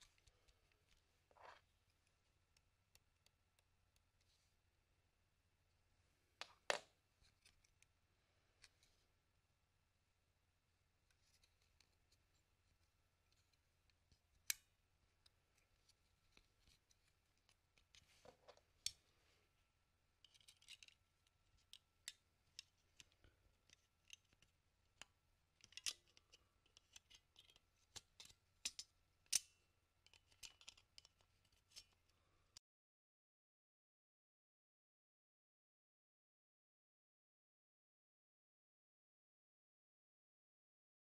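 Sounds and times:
metal tool clicking on plastic: 0:21.6 - 0:32.0.

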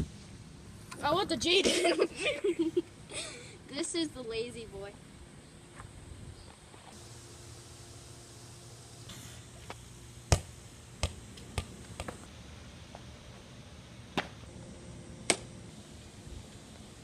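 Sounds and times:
ball striking basketball hoop: 0:10.3 - 0:12.3.

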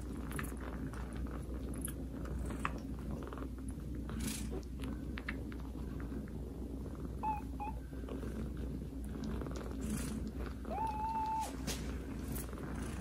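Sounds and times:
cat purring: 0:00.0 - 0:13.0.

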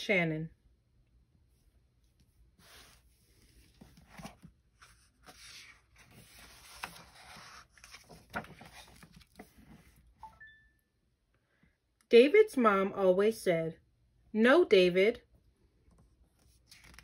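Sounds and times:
book pages rustling: 0:02.0 - 0:10.2, 0:15.9 - 0:17.0.

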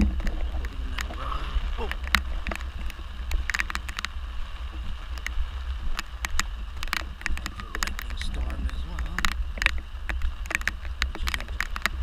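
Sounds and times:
rain hissing: 0:00.0 - 0:12.0
wind buffeting the microphone: 0:00.0 - 0:12.0
sharp clicks: 0:05.1 - 0:12.0.

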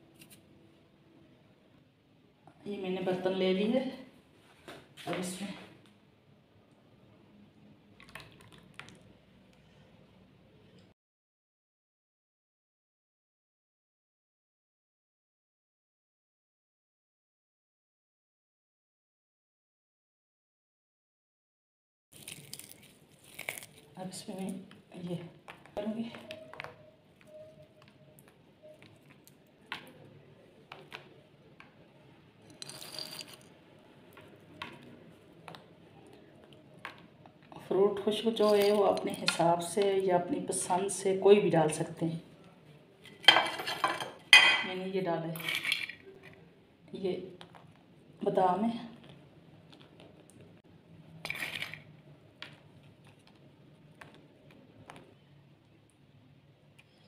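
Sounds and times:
almonds rustling: 0:22.2 - 0:24.6.

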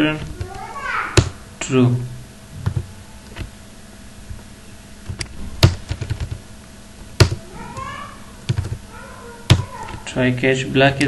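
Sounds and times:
computer keyboard typing: 0:05.6 - 0:06.4, 0:08.5 - 0:08.8.

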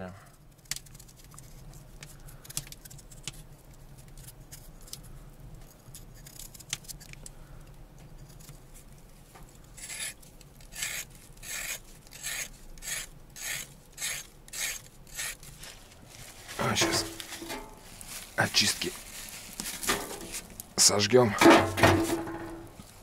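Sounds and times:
knife scraping carrot: 0:05.9 - 0:07.2, 0:08.2 - 0:08.9, 0:09.7 - 0:15.6.

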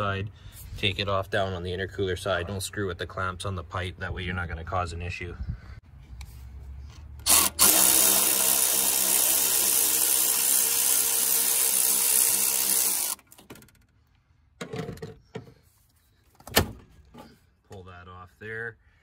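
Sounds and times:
cordless electric ratchet running: 0:07.2 - 0:13.3.

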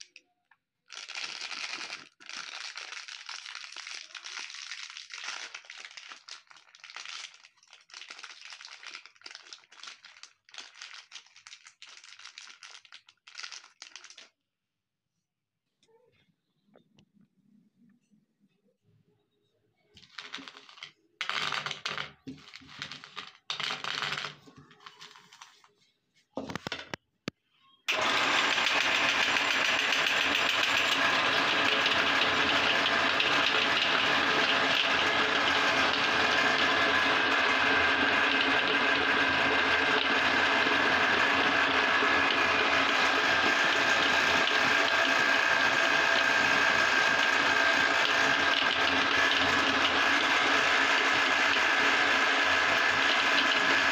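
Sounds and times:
machine whirring: 0:27.9 - 0:53.9.

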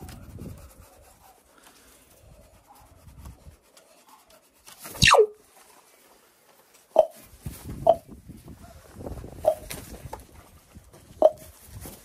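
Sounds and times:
scratching and rustling: 0:00.0 - 0:07.8.

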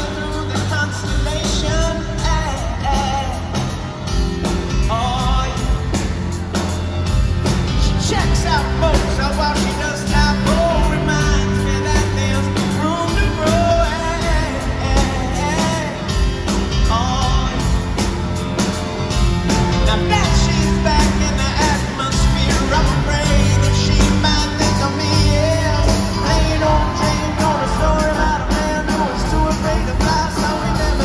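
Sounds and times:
man singing wordless lines: 0:00.0 - 0:03.8, 0:04.8 - 0:06.0, 0:07.8 - 0:17.8, 0:19.9 - 0:31.0
live rock band playing: 0:00.0 - 0:31.0.

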